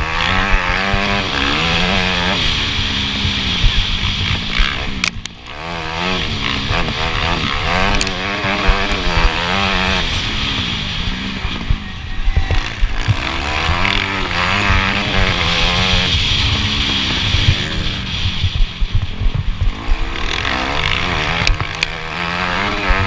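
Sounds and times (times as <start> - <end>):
motocross bike engine revving: 0.0 - 23.0
irregular low thumps: 11.3 - 20.2.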